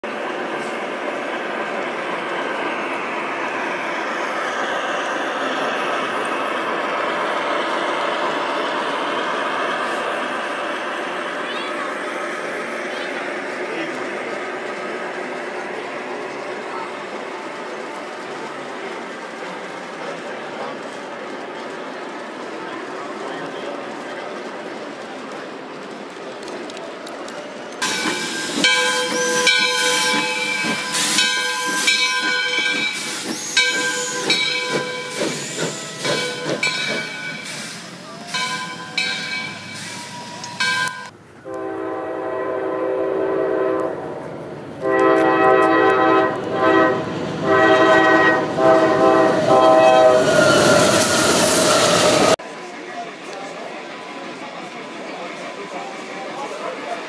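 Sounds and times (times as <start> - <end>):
train rushing past: 0.0 - 57.0
steam locomotive whistle: 27.8 - 37.0, 38.3 - 44.0, 44.8 - 52.4
hissing steam: 27.8 - 40.9, 48.6 - 52.4
locomotive air horn blasts: 41.5 - 43.9, 44.8 - 50.3.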